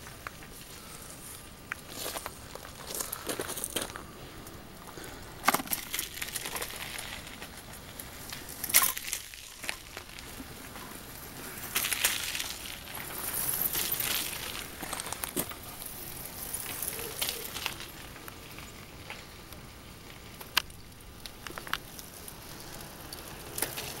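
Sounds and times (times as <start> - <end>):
clicks crackles and rustles: 0.0 - 24.0
bicycle rolling over wooden deck: 4.9 - 24.0.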